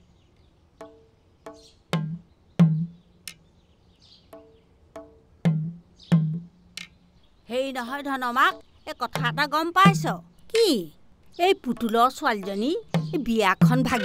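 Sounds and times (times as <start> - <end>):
hand percussion music: 8.5 - 14.0.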